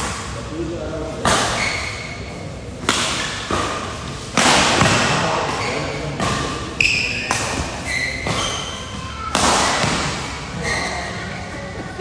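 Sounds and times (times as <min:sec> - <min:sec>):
shoe squeaks on court floor: 0:01.4 - 0:02.3, 0:05.5 - 0:06.1, 0:06.7 - 0:09.3, 0:10.6 - 0:11.2
rackets smacking shuttlecock: 0:02.8 - 0:08.7.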